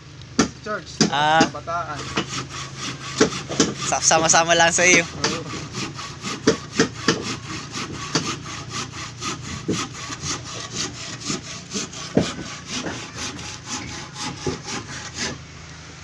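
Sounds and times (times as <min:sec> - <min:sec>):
loud knocks: 0:00.4 - 0:02.4, 0:03.1 - 0:03.9, 0:06.2 - 0:08.4, 0:09.4 - 0:15.4
hand saw cutting wood: 0:00.4 - 0:15.5.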